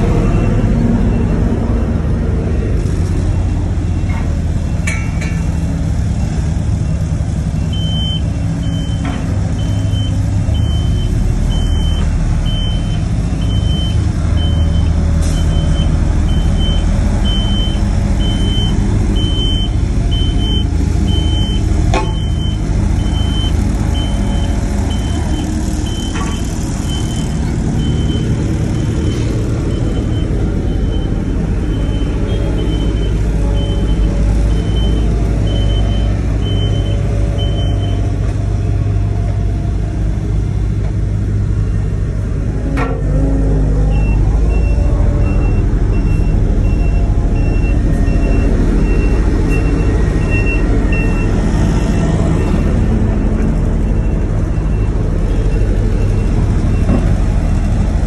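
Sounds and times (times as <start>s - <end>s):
road roller engine rumble: 0.0s - 58.0s
reversing alarm beeping: 7.6s - 38.1s, 43.9s - 52.8s.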